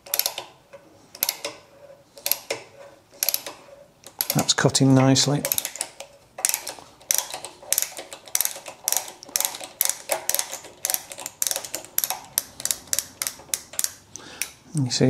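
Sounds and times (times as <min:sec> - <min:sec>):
tap holder ratcheting clicks: 0:00.0 - 0:00.5, 0:01.2 - 0:01.6, 0:03.2 - 0:04.5, 0:05.4 - 0:14.6.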